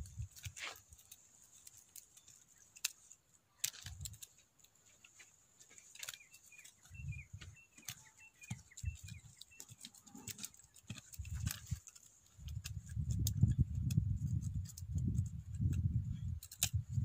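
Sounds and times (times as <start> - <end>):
hand hoe chopping soil: 0.0 - 4.3, 7.4 - 15.0
bird chirping: 5.7 - 11.8.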